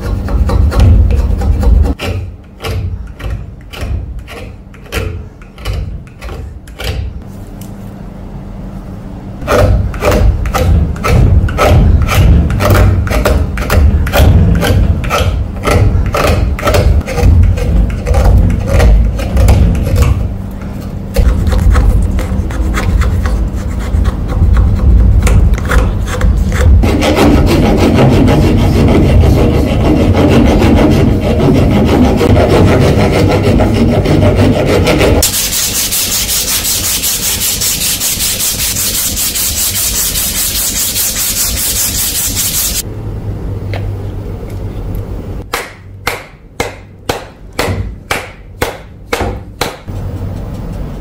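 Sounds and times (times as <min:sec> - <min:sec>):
dense rubbing on wood: 0:21.2 - 0:42.8
back-and-forth strokes on wood: 0:26.8 - 0:42.8.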